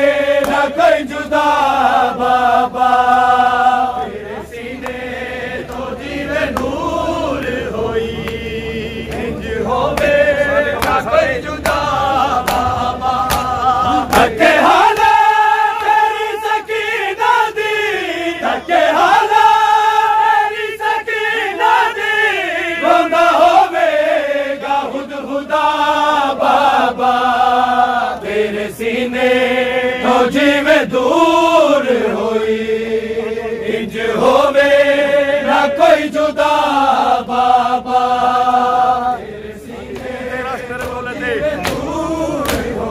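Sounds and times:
men chanting a lament: 0.0 - 42.9
chest-beating slaps: 0.4 - 0.7, 10.8 - 15.2, 39.9 - 42.8.

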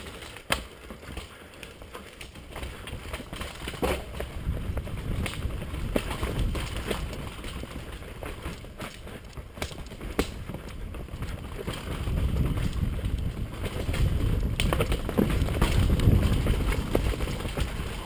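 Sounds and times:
mountain bike tyres rumbling: 0.0 - 18.0
sharp knocks over bumps: 0.0 - 18.0.

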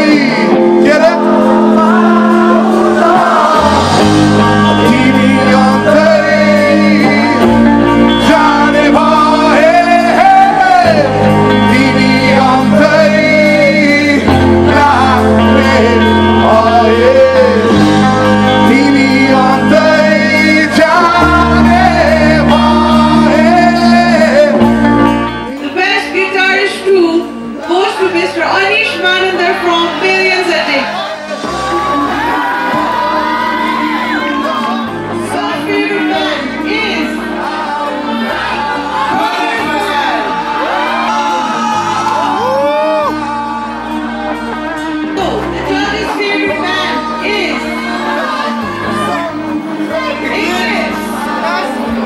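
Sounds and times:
bass guitar held notes: 0.0 - 25.6
person singing: 0.0 - 25.7, 30.6 - 52.0
rock band playing live: 0.0 - 52.0.

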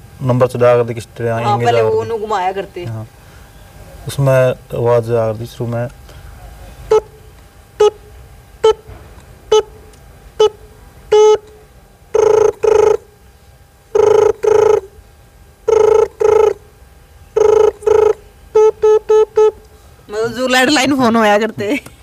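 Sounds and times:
person mimicking phone ringing: 1.4 - 2.3, 8.6 - 8.8, 10.4 - 11.5, 12.1 - 13.1, 13.9 - 15.0, 15.7 - 16.7, 17.4 - 19.6
person mimicking phone beeps: 6.9 - 7.1, 7.8 - 8.0, 8.6 - 8.8, 9.5 - 9.7, 10.4 - 11.5, 12.2 - 13.1, 14.0 - 14.9, 15.7 - 16.6, 17.4 - 19.6.

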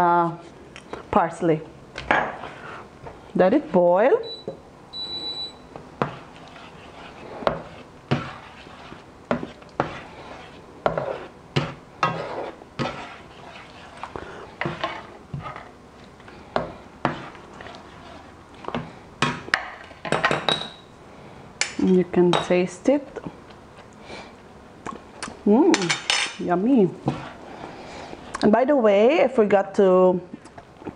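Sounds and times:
turner scraping a frying pan: 2.3 - 2.9, 6.0 - 15.7, 16.6 - 18.8.

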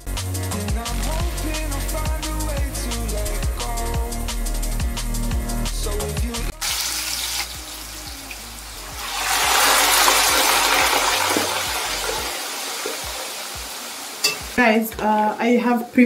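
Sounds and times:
background music with a beat: 0.0 - 12.4, 13.0 - 15.1
oil sizzling in a pan: 6.5 - 16.0.

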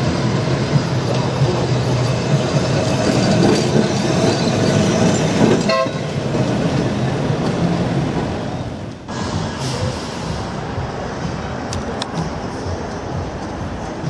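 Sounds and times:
tram motors humming: 0.0 - 14.0
wheels rolling on rails: 0.4 - 7.8
tram horn toot: 5.6 - 6.3.

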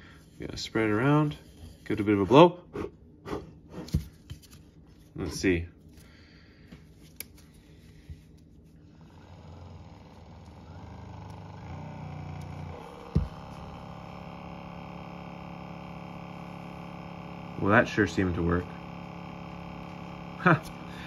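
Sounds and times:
massage gun motor hum: 8.7 - 21.0.

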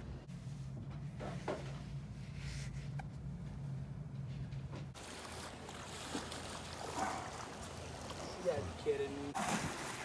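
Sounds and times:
steady low hum: 0.0 - 5.8
water splashing and lapping: 4.9 - 10.0.

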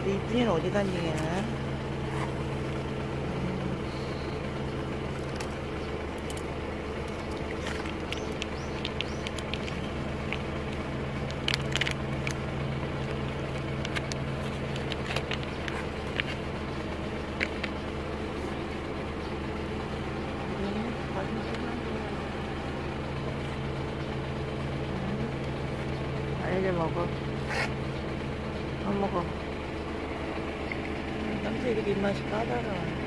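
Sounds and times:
low mechanical hum: 0.0 - 33.0
cats crunching dry food: 4.8 - 18.5.

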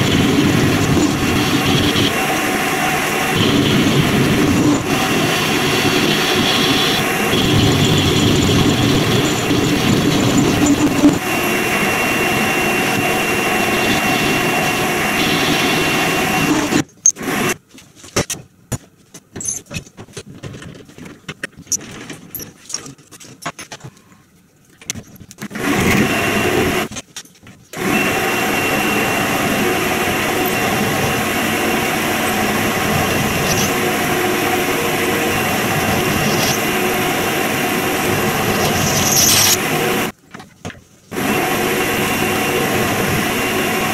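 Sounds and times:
metal lathe whining: 0.0 - 17.6, 25.6 - 26.9, 27.8 - 40.1, 41.2 - 43.9.

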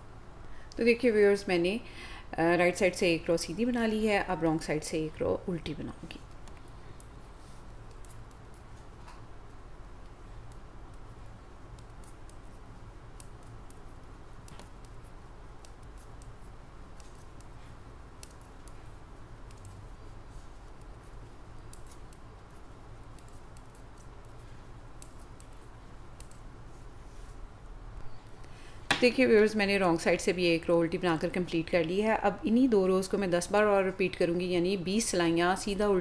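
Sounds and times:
knitting needles clicking: 13.2 - 20.0, 20.6 - 26.5.

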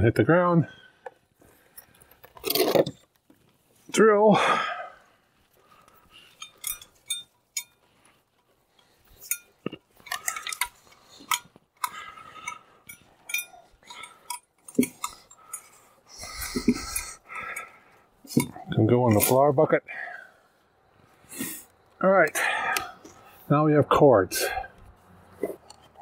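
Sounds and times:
small metal hardware clinking: 6.2 - 15.8.

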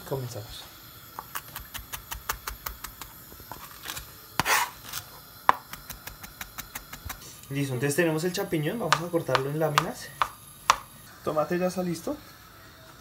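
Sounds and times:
knife scrape: 3.5 - 5.2
knife taps on cutting board: 8.9 - 10.9.

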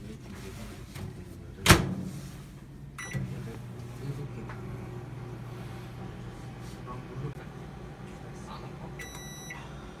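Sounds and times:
microwave oven humming: 2.6 - 10.0
microwave keypad beep: 3.0 - 3.3, 9.0 - 9.6.

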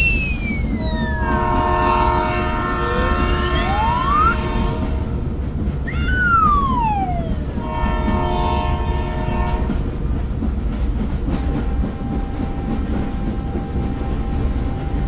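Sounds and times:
train running rumble: 0.0 - 15.0
train horn sliding down: 0.7 - 5.2, 6.8 - 9.8.

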